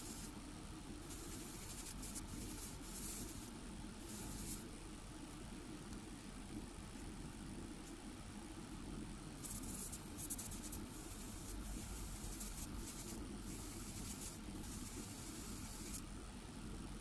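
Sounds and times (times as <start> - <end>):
airbrush spraying hiss: 0.0 - 0.4, 1.1 - 3.5, 4.1 - 4.6, 9.4 - 16.0.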